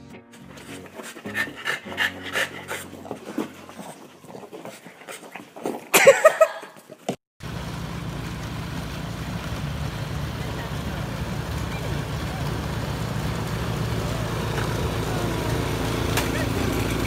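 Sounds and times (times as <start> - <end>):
dog panting: 0.4 - 6.0
dog crying: 0.6 - 4.5
snowblower engine running: 7.4 - 17.0.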